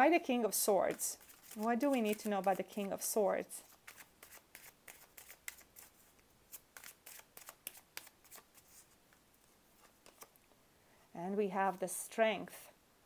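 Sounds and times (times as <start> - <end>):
cards being shuffled: 0.8 - 3.0, 3.6 - 9.0, 9.8 - 10.4.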